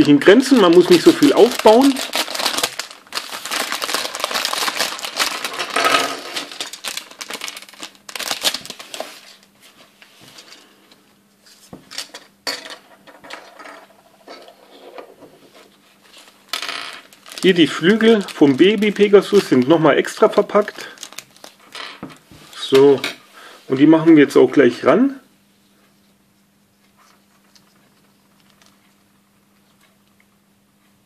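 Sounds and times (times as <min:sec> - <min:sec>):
plastic bag crinkling: 0:00.0 - 0:09.5, 0:16.0 - 0:21.8, 0:27.4 - 0:28.8.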